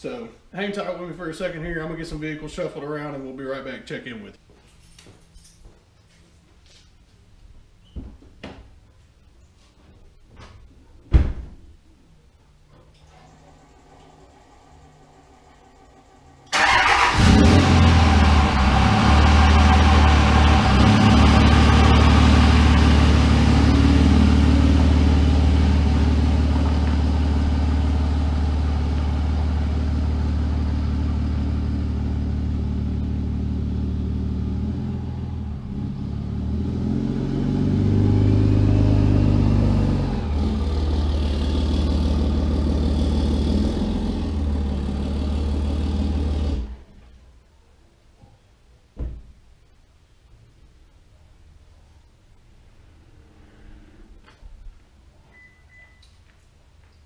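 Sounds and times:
truck engine running: 0:13.3 - 0:36.0, 0:38.0 - 0:46.7.

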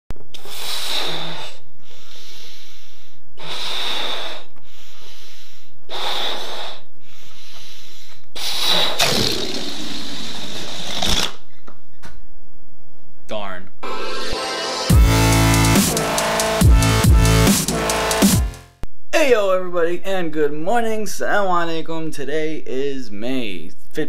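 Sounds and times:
man blowing up a balloon: 0:00.3 - 0:11.4, 0:15.0 - 0:18.5
balloon air hissing out: 0:00.4 - 0:02.6, 0:03.4 - 0:05.3, 0:05.9 - 0:06.8, 0:08.4 - 0:11.3.

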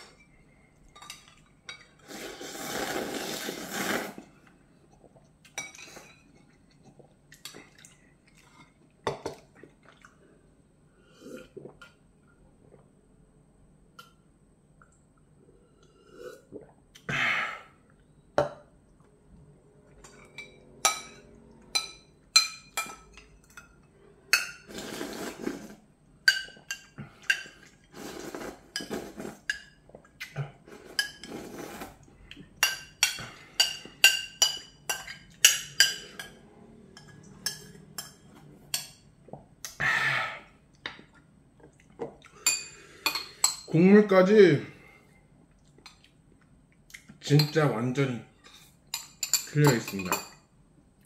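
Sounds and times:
broth being slurped: 0:02.0 - 0:04.4, 0:24.7 - 0:25.8, 0:27.0 - 0:32.2
utensils clinking on bowls: 0:48.5 - 0:50.4.

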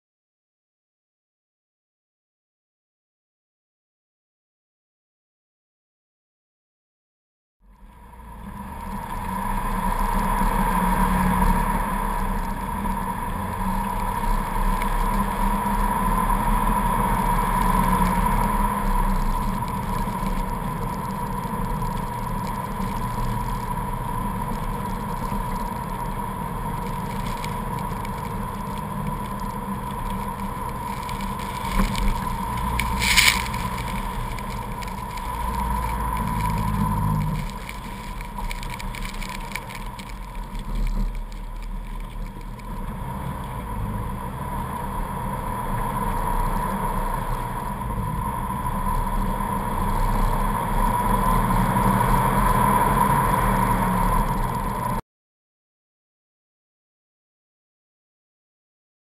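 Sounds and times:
thin whine: 0:07.8 - 0:55.0
car engine running: 0:08.0 - 0:55.0
tyres churning through snow: 0:08.0 - 0:55.0.

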